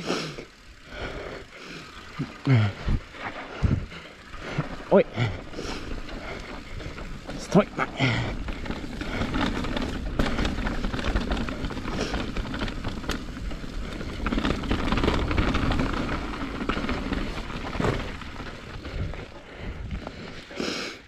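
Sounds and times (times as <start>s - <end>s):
tyres crunching on gravel: 4.2s - 19.6s.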